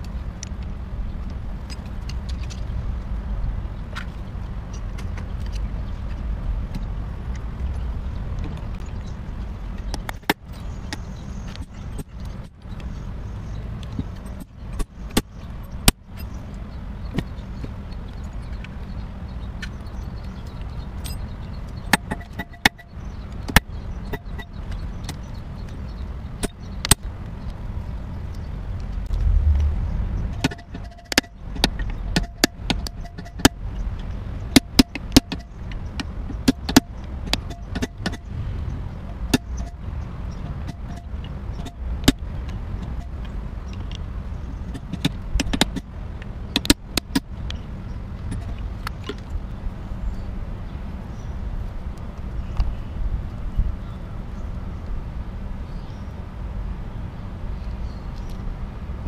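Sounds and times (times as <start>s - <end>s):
low rumble: 27.7s - 32.2s.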